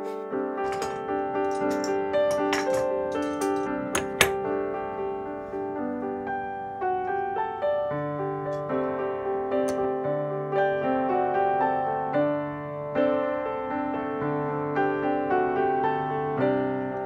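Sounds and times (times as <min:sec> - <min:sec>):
gentle piano music: 0:00.0 - 0:17.0.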